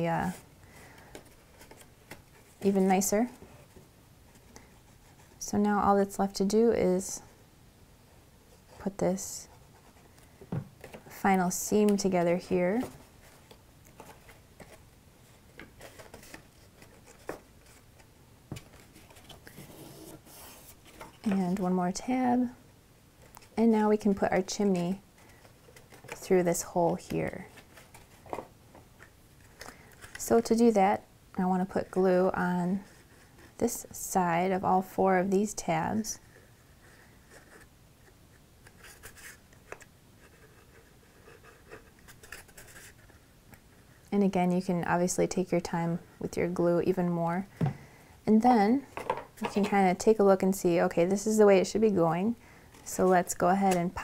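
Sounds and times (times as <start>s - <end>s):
cardstock rustling: 11.8s - 21.7s.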